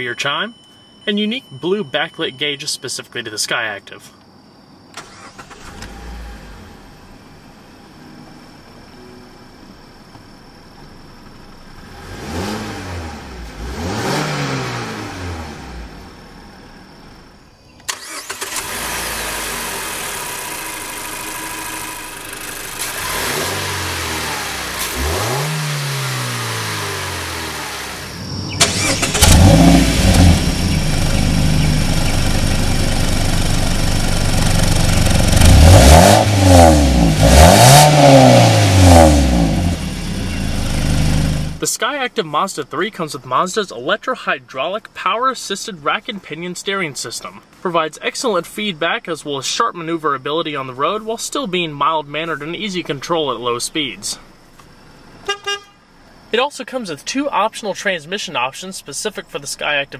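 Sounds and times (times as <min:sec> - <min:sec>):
car engine idling and revving: 0:05.0 - 0:41.6.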